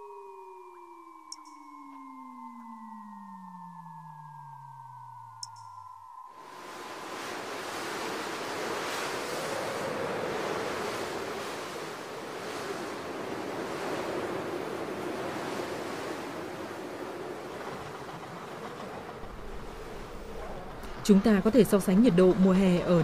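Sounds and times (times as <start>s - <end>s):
blizzard wind blowing hard: 6.4s - 23.0s.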